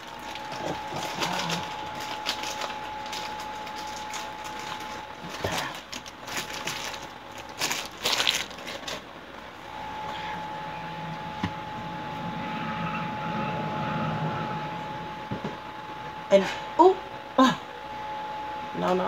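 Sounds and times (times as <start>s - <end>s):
plastic packaging crinkling: 0.0s - 9.2s.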